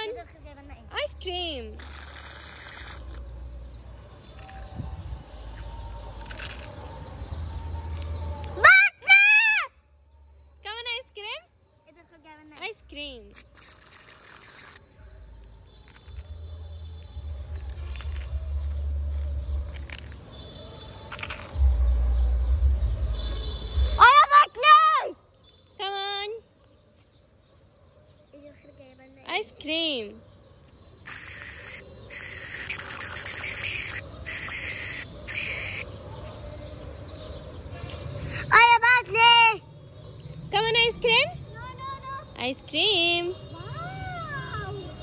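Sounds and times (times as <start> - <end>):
aerosol can spraying cream: 1.8 - 3.2, 13.3 - 14.9, 31.0 - 35.8
teeth crunching wafer cone: 6.0 - 6.8, 15.8 - 16.4, 17.5 - 20.2, 20.9 - 21.6.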